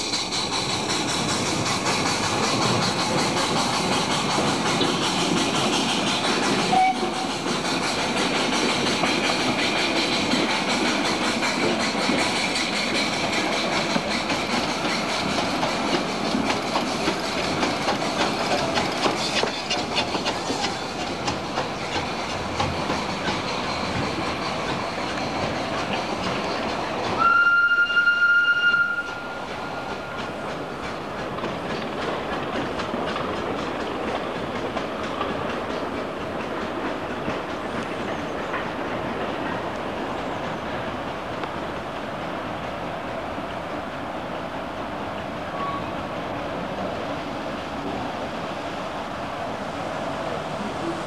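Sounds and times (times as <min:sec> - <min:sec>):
wheels clattering on rails: 0:00.0 - 0:27.3, 0:29.0 - 0:43.3
steam locomotive chuffing: 0:00.0 - 0:51.0
steam whistle blast: 0:06.7 - 0:07.3, 0:27.2 - 0:29.9.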